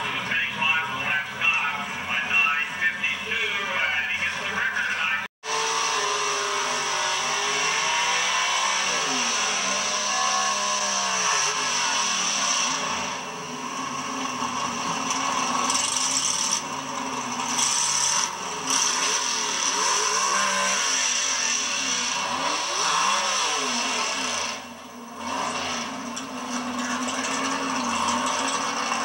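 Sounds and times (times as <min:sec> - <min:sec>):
car engine running loud and rough: 0:00.0 - 0:29.0.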